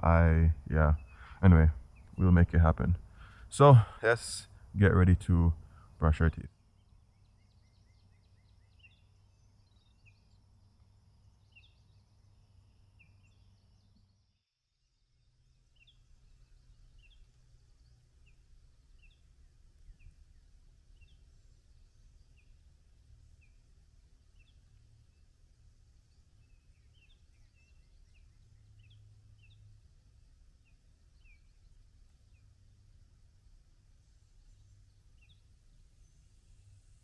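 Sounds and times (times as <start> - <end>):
faint low rumble: 0.0 - 14.2.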